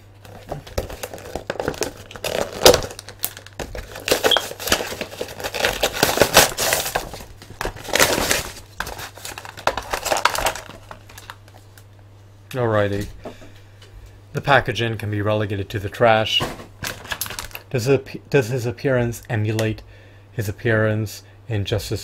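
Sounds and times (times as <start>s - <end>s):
blister packaging crinkling and tearing: 0.2s - 11.9s.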